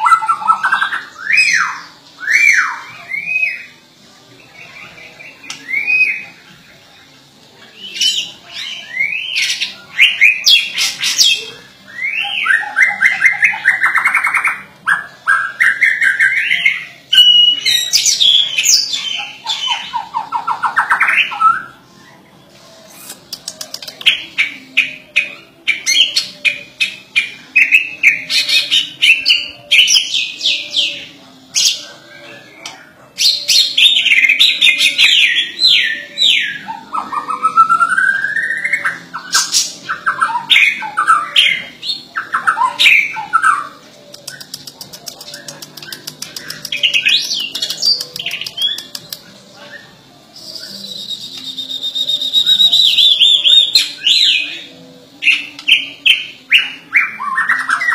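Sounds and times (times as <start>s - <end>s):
bird singing varied phrases: 33.3s - 57.9s.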